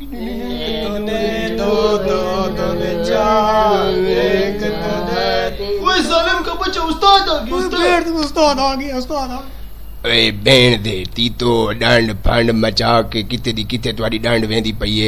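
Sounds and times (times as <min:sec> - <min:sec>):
steady low drone: 0:00.0 - 0:05.7
person chanting: 0:00.0 - 0:06.2
speech-like vocal sounds: 0:00.0 - 0:08.2, 0:10.1 - 0:15.0.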